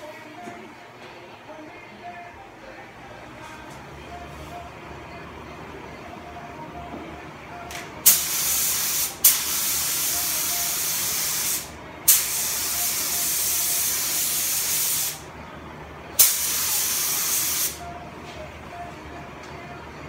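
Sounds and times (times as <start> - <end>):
paint spray gun hissing: 8.1 - 15.2, 16.2 - 17.8.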